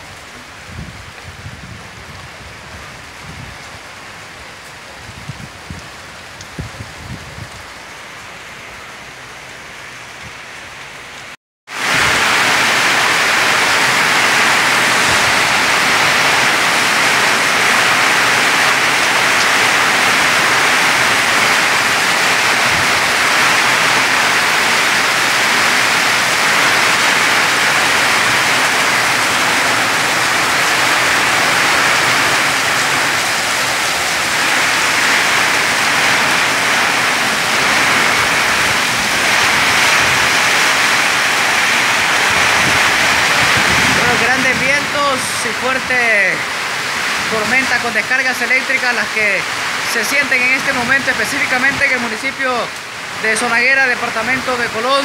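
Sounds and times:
heavy rain with strong wind: 0:00.0 - 0:55.0.

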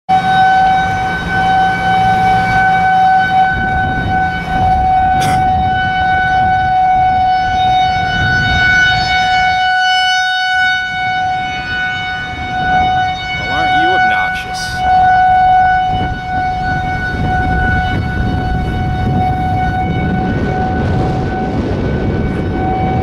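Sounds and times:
tornado warning siren steady tone: 0:00.1 - 0:23.0.

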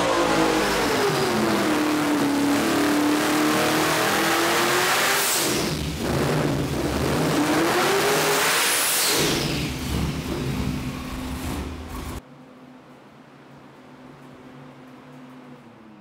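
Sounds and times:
car engine revving: 0:00.0 - 0:12.2.

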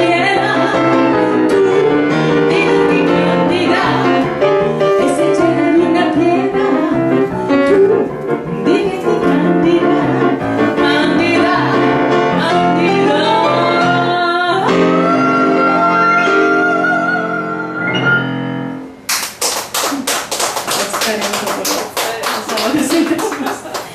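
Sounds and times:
woman singing into a microphone: 0:00.0 - 0:04.3, 0:05.0 - 0:11.8, 0:12.4 - 0:17.6
grand piano accompaniment: 0:00.0 - 0:23.9.

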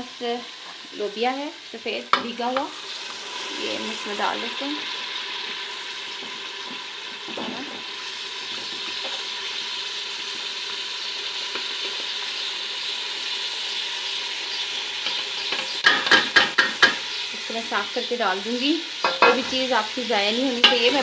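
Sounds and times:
food sizzling in a pot: 0:00.0 - 0:21.0
spoon knocking and scraping pot: 0:15.0 - 0:17.1, 0:19.0 - 0:19.7, 0:20.6 - 0:21.0.

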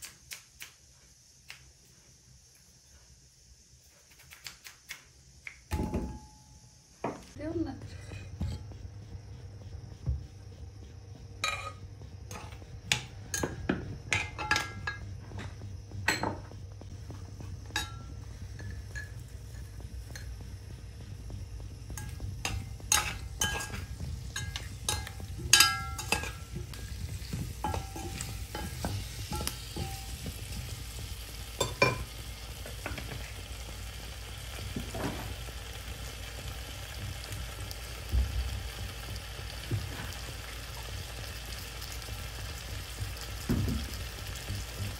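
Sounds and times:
potato wedges frying in oil: 0:11.0 - 0:44.9
clinks against a pot: 0:11.4 - 0:15.1, 0:17.7 - 0:20.4, 0:22.0 - 0:26.7, 0:27.6 - 0:30.3, 0:31.6 - 0:32.1.

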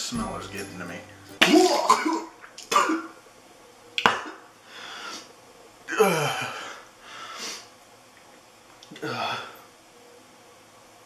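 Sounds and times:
man sharp breath: 0:04.7 - 0:05.3, 0:07.0 - 0:07.7.

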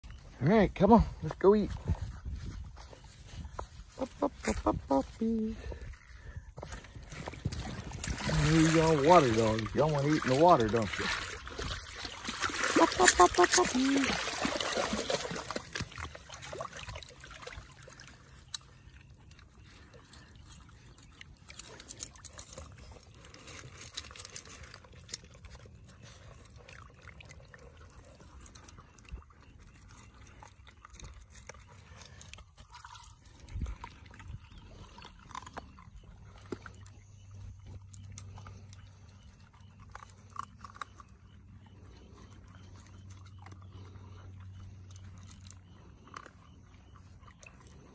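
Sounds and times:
puppies crunching kibble: 0:00.0 - 0:47.9
water splashing: 0:07.0 - 0:18.8.

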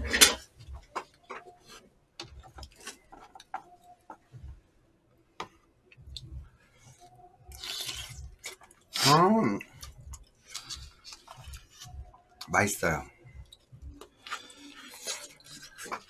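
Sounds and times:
soft chewing: 0:05.8 - 0:09.0, 0:09.6 - 0:12.5, 0:13.2 - 0:16.0.

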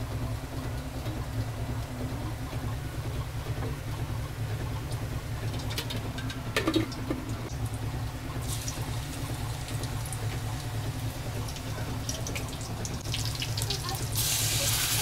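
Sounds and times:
steady low hum: 0:00.0 - 0:15.0
ginger and garlic sizzling in oil: 0:13.0 - 0:15.0.

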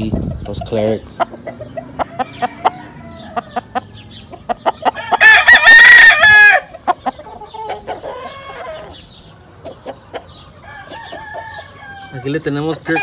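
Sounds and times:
soft clucking calls: 0:00.0 - 0:13.0
rooster crowing: 0:02.0 - 0:04.0, 0:04.8 - 0:06.7, 0:10.6 - 0:12.3.

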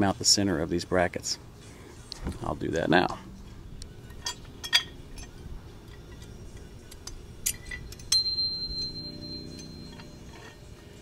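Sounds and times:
metal tools clicking and clinking: 0:04.0 - 0:11.0
high ringing tone: 0:04.2 - 0:11.0.

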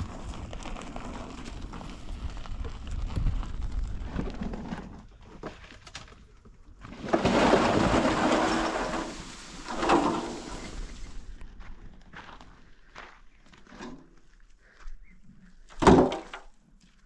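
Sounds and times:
stones tumbling out clattering: 0:06.8 - 0:11.2
wheelbarrow of stones rattling: 0:06.8 - 0:11.2.

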